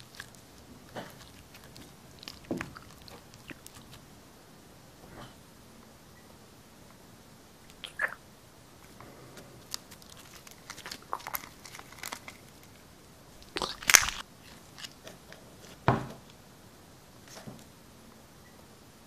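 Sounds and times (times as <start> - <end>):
slime squelching: 0.0 - 4.2, 8.9 - 15.8.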